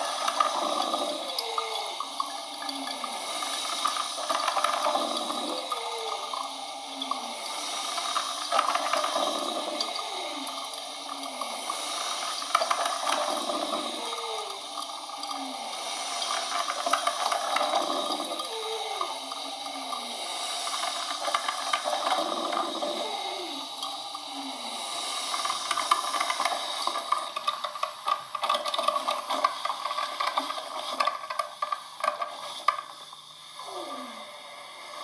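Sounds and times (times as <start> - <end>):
water bubbling: 0.0 - 31.7
coffee machine hissing with steam: 0.0 - 35.0.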